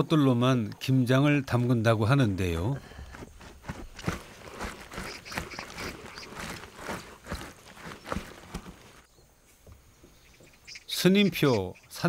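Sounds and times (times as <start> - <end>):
hands rustling cabbage in basin: 2.9 - 9.1.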